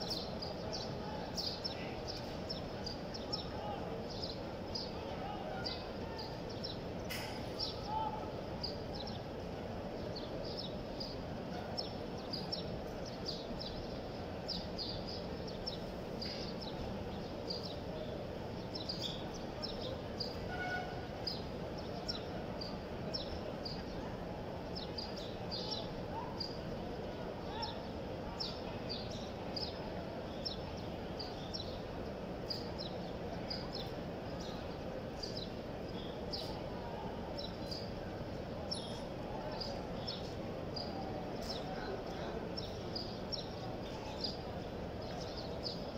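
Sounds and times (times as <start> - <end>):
crowd hubbub: 0.0 - 45.9
small birds chirping: 0.0 - 45.9.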